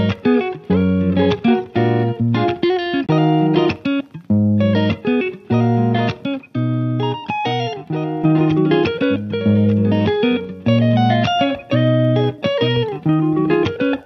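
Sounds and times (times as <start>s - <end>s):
plucked guitar music: 0.0s - 14.0s.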